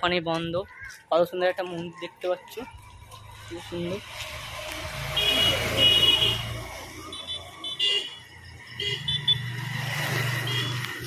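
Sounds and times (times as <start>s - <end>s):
vehicle engine hum: 2.6s - 11.0s.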